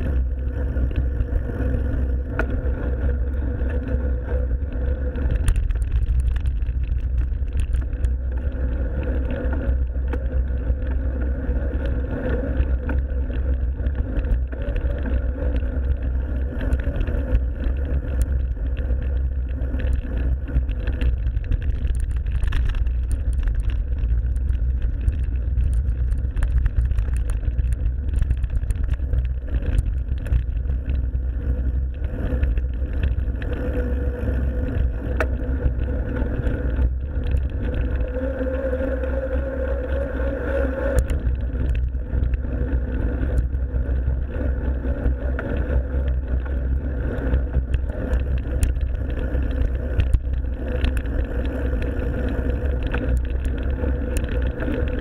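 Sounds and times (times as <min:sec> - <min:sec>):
bike rattles and clicks: 0:00.0 - 0:55.0
wind and tyres rumbling: 0:00.0 - 0:55.0.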